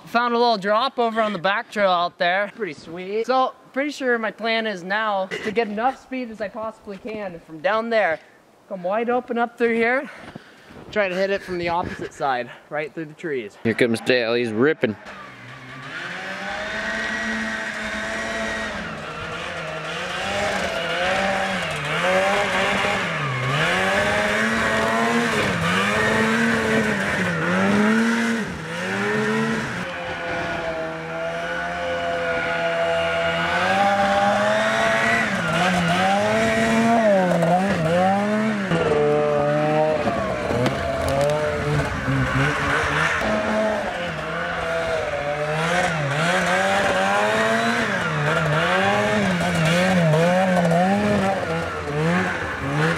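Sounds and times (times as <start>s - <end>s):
snowmobile engine revving: 11.0s - 52.9s.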